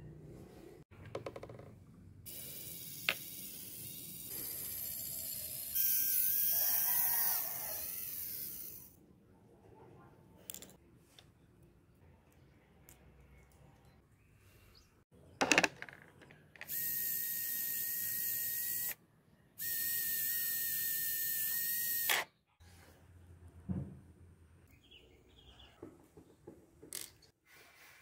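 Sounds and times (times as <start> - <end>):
servo motor whining: 2.3 - 8.9, 16.6 - 19.0, 19.6 - 22.3.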